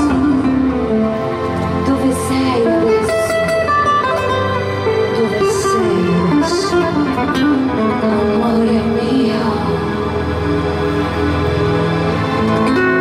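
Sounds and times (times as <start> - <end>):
acoustic guitar playing: 0.0 - 9.4, 12.2 - 13.0.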